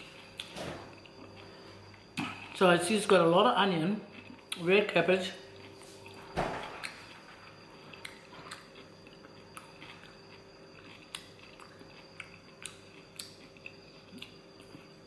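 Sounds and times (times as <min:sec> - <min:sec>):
faint steady hum: 0:00.0 - 0:15.0
chewing: 0:04.1 - 0:04.6, 0:05.5 - 0:15.0.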